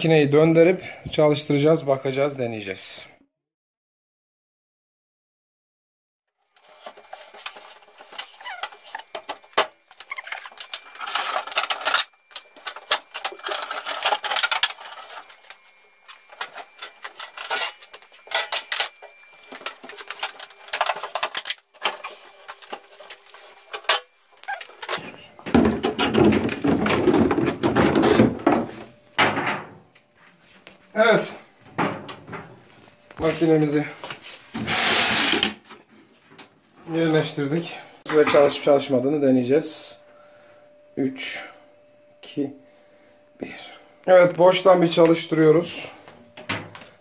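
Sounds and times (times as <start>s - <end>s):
washing machine knocking and rattling: 31.7s - 32.6s
machine sliding across floor: 34.5s - 35.6s.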